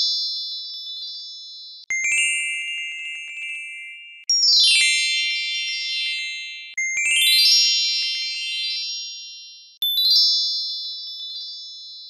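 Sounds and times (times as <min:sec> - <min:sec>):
tinkling bell chimes: 0:01.9 - 0:10.6.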